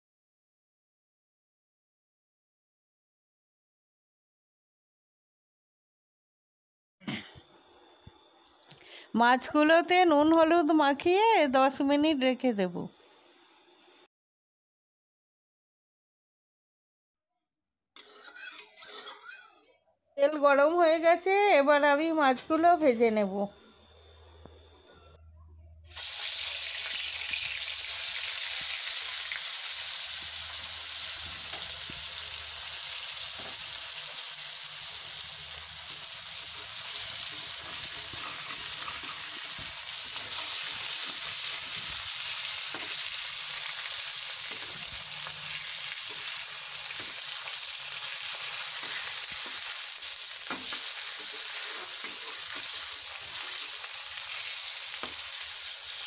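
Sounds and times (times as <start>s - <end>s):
fish frying in hot oil: 25.9s - 56.0s.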